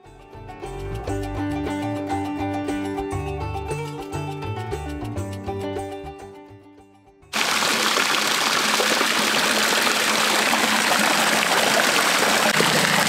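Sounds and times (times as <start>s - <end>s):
running water rushing: 7.4s - 13.0s.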